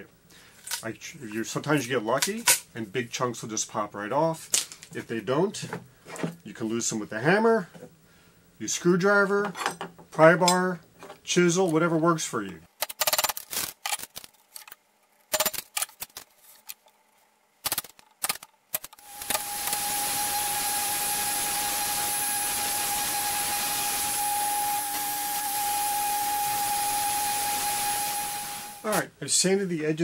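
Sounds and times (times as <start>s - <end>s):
power sander whining: 19.0s - 28.9s.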